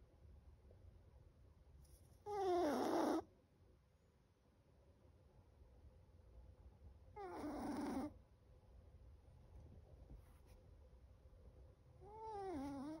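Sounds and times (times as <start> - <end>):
puppy snoring: 2.2 - 3.3, 7.2 - 8.2, 12.0 - 13.0.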